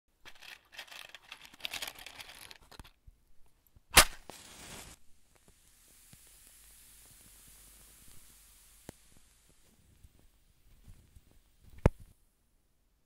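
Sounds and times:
scratchy rustling: 0:00.3 - 0:02.9
match striking on box: 0:03.9 - 0:09.7
match head flaring hiss: 0:04.0 - 0:10.3.

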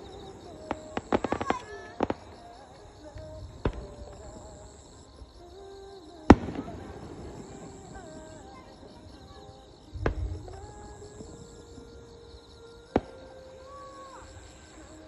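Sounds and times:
firework shells bursting: 0:00.0 - 0:04.6, 0:06.3 - 0:08.9.

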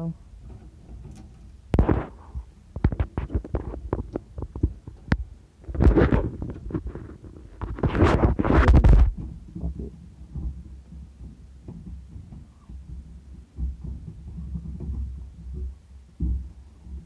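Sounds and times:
scratchy rubbing: 0:00.4 - 0:04.6, 0:05.6 - 0:09.1.

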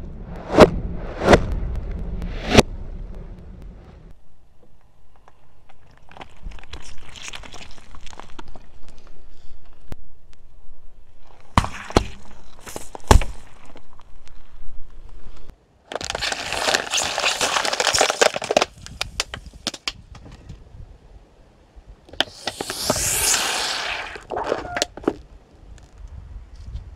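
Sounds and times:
plastic bottles crackling and splitting: 0:15.9 - 0:20.0
liquid spraying with hiss: 0:22.3 - 0:24.2.

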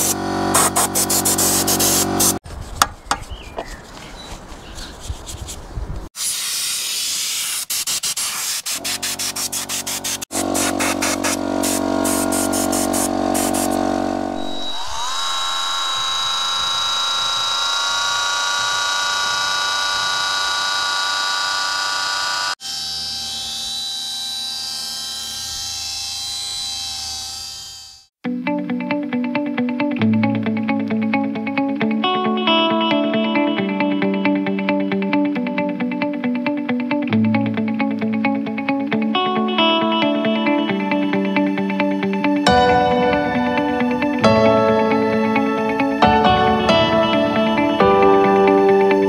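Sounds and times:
scratchy brushing noise: 0:00.0 - 0:13.8
electric rotary tool whirring: 0:08.8 - 0:28.2.

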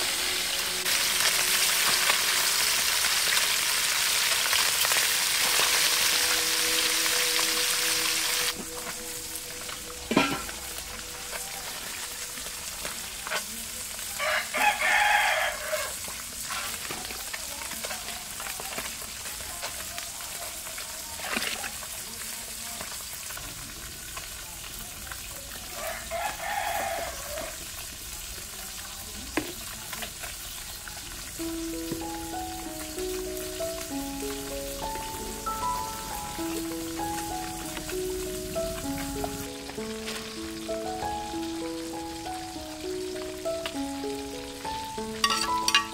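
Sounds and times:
music: 0:00.0 - 0:21.6, 0:31.0 - 0:45.9
fish sizzling in hot oil: 0:00.0 - 0:45.9
rooster crowing: 0:14.1 - 0:16.0, 0:25.7 - 0:27.6.

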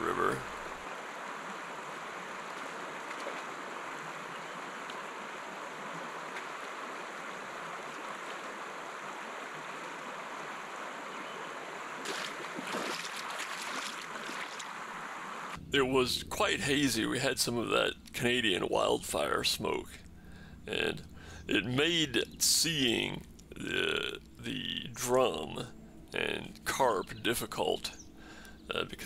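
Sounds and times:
river water flowing: 0:00.0 - 0:15.6
water splashing: 0:00.0 - 0:15.6.

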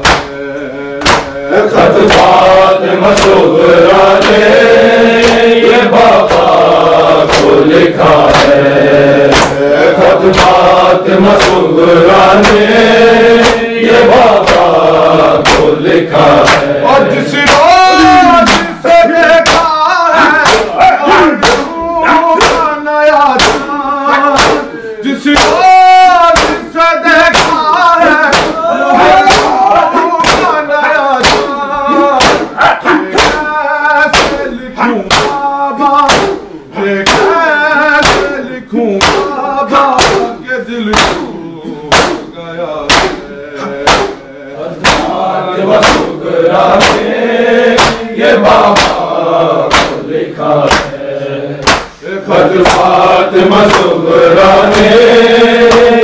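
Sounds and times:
chest beating thuds: 0:00.0 - 0:00.4, 0:01.0 - 0:01.4, 0:02.0 - 0:04.6, 0:05.2 - 0:12.8, 0:13.4 - 0:16.7, 0:17.4 - 0:19.7, 0:20.4 - 0:22.7, 0:23.4 - 0:23.7, 0:24.3 - 0:24.7, 0:26.3 - 0:26.7, 0:27.3 - 0:27.6, 0:28.2 - 0:30.6, 0:31.2 - 0:33.5, 0:34.1 - 0:37.4, 0:38.0 - 0:38.4, 0:39.0 - 0:42.3, 0:42.9 - 0:49.1, 0:49.7 - 0:50.9, 0:51.6 - 0:52.0, 0:52.6 - 0:54.0, 0:54.6 - 0:56.0
men chanting in unison: 0:00.0 - 0:56.0
men singing a lament: 0:00.0 - 0:56.0.

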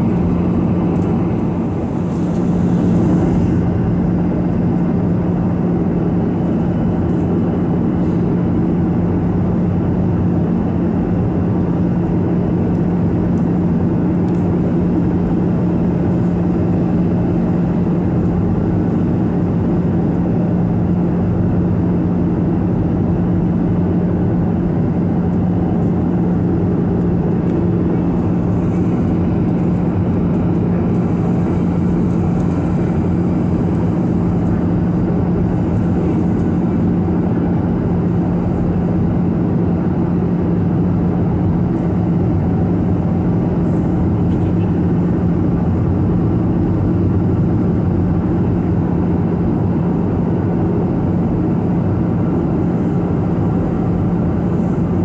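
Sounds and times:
rushing air: 0:00.0 - 0:04.2, 0:26.1 - 0:37.1
jet engine drone: 0:00.0 - 0:55.0
steady low hum: 0:00.0 - 0:55.0.

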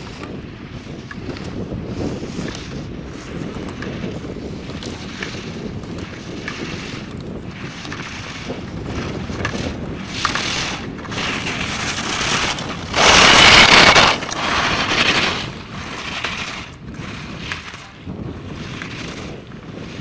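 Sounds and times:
skis carving on snow: 0:00.0 - 0:20.0
wind buffeting microphone: 0:00.0 - 0:20.0.

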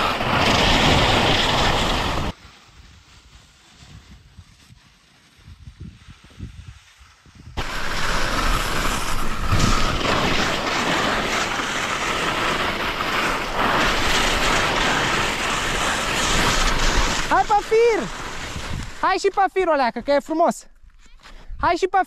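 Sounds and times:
wind buffeting microphone: 0:05.4 - 0:19.0.

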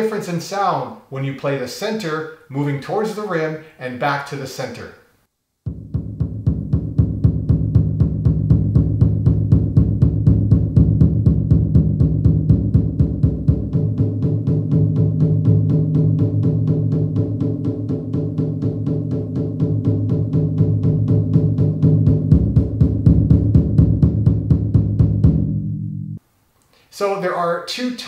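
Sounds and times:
electronic taiko drum roll: 0:05.7 - 0:26.2.

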